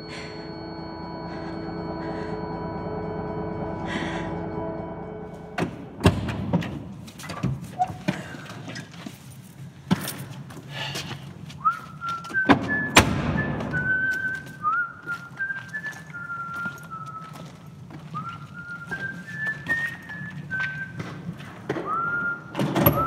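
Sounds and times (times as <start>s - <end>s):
person whistling a slow tune: 11.6s - 23.0s.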